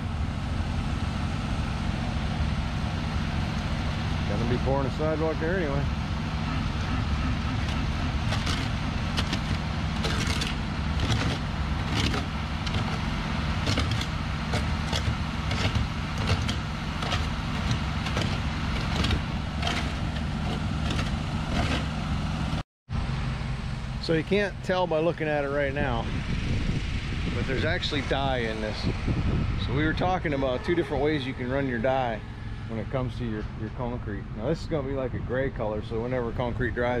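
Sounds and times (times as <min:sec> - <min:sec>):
diesel engine running: 0:00.0 - 0:37.0
hand tools scraping concrete: 0:08.3 - 0:22.0.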